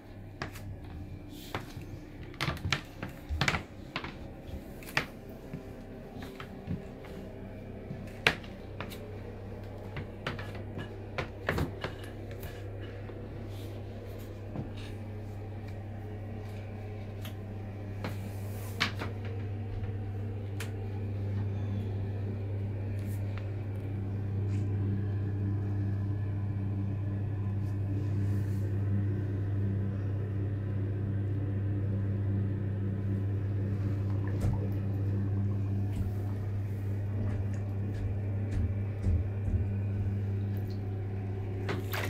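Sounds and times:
steady low hum: 0.0s - 42.0s
footsteps on tile floor: 0.4s - 12.6s, 35.8s - 40.2s.

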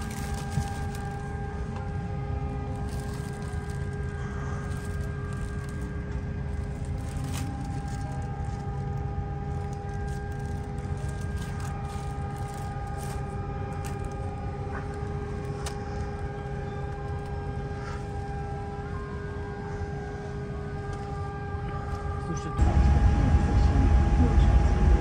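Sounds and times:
aircraft cabin air hum: 0.0s - 25.0s.

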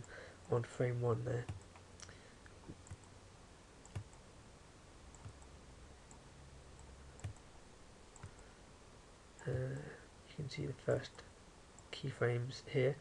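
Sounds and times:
low room hiss: 0.0s - 13.0s
computer mouse clicks: 2.7s - 3.1s, 3.8s - 4.2s, 5.1s - 5.5s, 6.8s - 7.5s, 8.1s - 8.5s.

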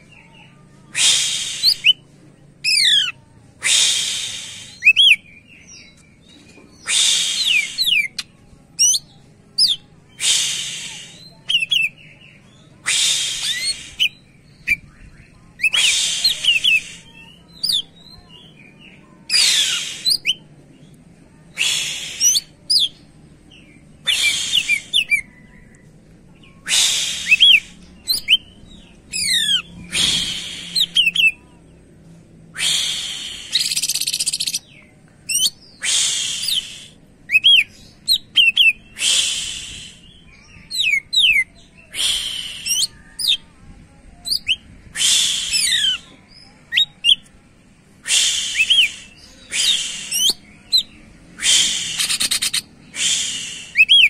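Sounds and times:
bird sliding whistles: 12.9s - 14.1s
bird song harsh rapid bursts: 12.9s - 14.3s, 19.3s - 20.4s, 26.7s - 28.5s, 32.7s - 34.6s, 48.1s - 50.4s, 51.4s - 54.0s.

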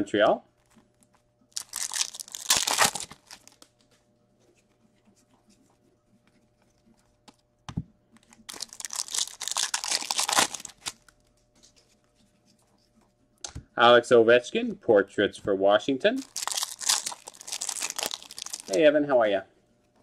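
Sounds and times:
card pack wrappers tearing and crinkling: 1.5s - 3.6s, 8.3s - 11.2s, 16.2s - 18.8s.

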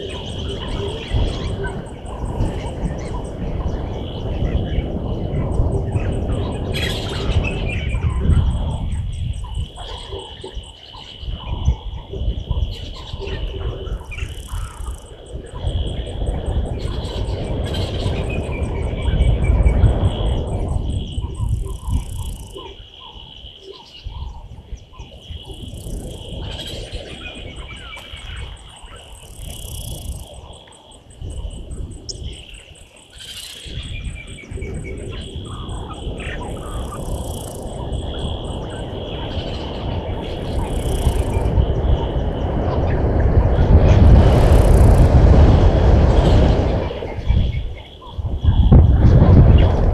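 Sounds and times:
insect trill: 0.0s - 49.9s
loud low rumble: 41.3s - 49.9s.

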